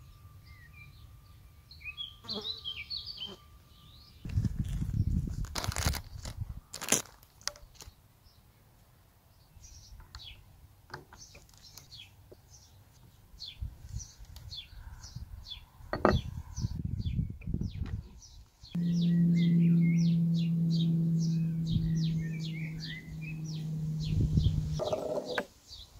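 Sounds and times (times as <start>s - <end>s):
plastic bag rustling: 4.3s - 7.9s
small birds chirping: 9.3s - 25.9s.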